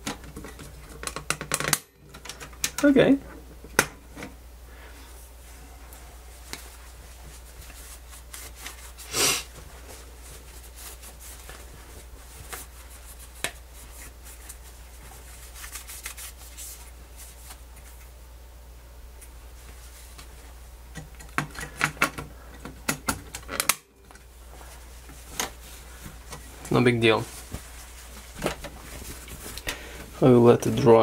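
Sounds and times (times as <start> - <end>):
steady low hum: 0.0 - 31.0
hands rubbing plastic: 5.9 - 18.2, 24.5 - 31.0.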